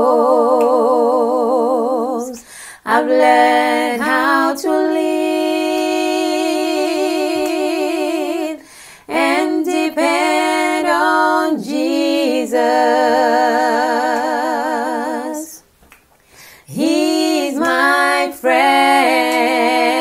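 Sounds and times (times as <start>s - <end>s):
woman singing in harmony: 0.0s - 15.7s, 16.6s - 20.0s
singer breathing: 2.4s - 2.8s, 8.6s - 9.1s, 16.2s - 16.7s.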